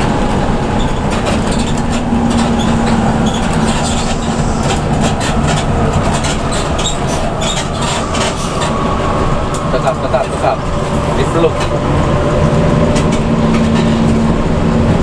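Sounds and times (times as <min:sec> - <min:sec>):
bus engine and road rumble: 0:00.0 - 0:15.0.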